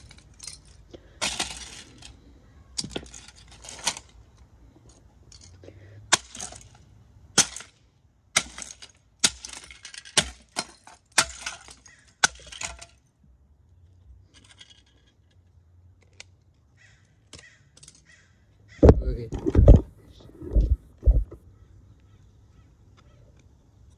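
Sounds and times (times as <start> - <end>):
plastic pieces clattering on floor: 0.0 - 2.1.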